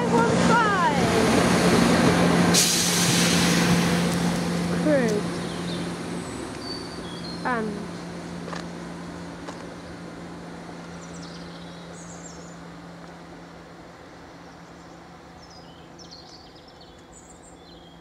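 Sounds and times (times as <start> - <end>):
diesel train engine drone: 0.0 - 18.0
birds chirping: 5.1 - 8.0, 10.8 - 12.8, 14.1 - 18.0.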